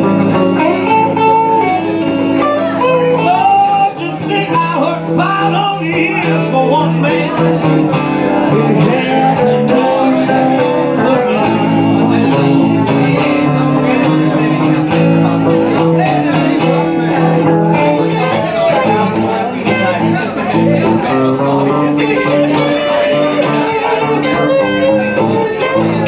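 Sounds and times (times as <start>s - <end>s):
blues guitars: 0.0s - 26.0s.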